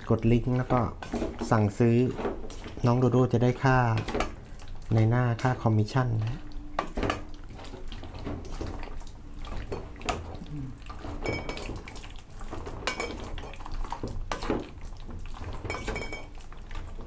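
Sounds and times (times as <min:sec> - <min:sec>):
steel bowl ringing: 0:15.7 - 0:16.3.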